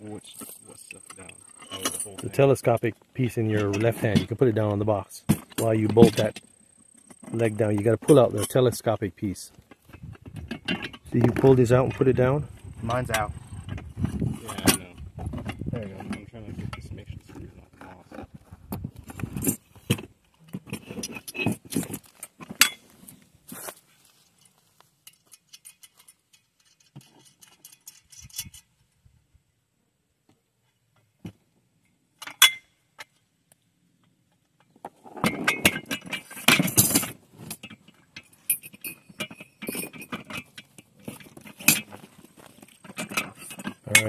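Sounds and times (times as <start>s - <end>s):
metal parts clinking and rattling: 0.3s - 2.8s, 9.7s - 16.3s, 19.1s - 22.9s, 24.4s - 28.7s, 35.0s - 44.0s.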